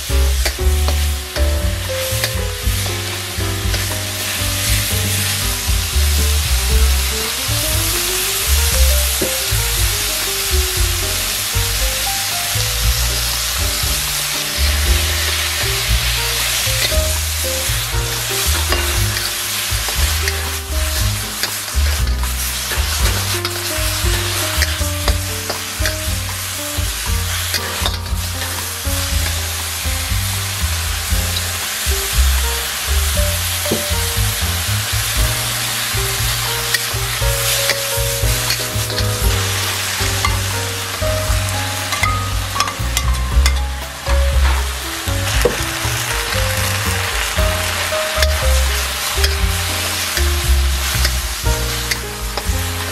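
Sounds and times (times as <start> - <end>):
food sizzling in a wok: 0.0 - 52.9
metal spatula scraping wok: 18.2 - 26.6, 27.3 - 28.9.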